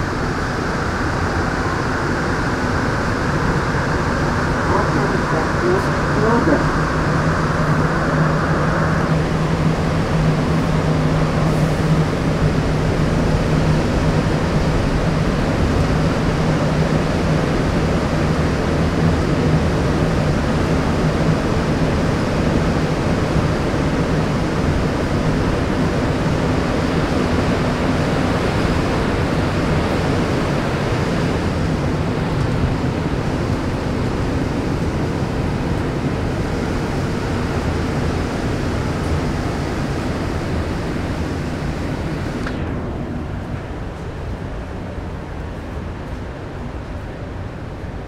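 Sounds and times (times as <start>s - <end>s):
low hum: 0.0s - 20.5s, 38.2s - 48.0s
train rushing through tunnel: 0.0s - 48.0s.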